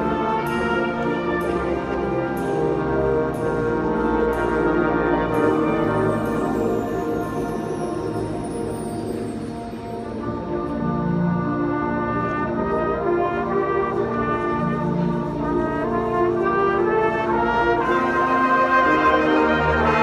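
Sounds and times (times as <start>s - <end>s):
brass and saxophone ensemble chords: 0.0s - 20.0s.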